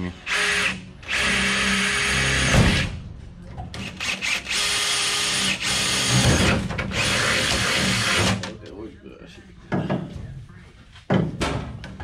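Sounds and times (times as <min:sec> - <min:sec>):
cordless drill boring metal: 0:00.3 - 0:02.6, 0:03.8 - 0:08.4.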